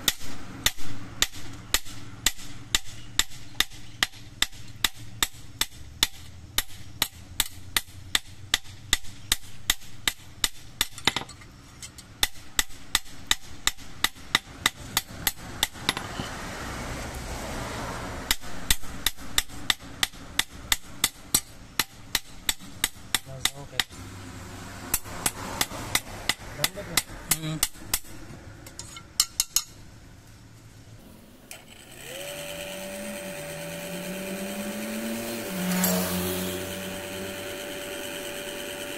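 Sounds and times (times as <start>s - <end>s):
hammer striking steel blade on anvil: 28.8s - 29.8s, 35.7s - 36.5s.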